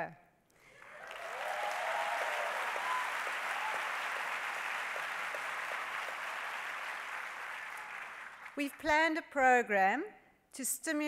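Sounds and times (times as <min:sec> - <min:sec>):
audience applauding: 0:00.6 - 0:08.8.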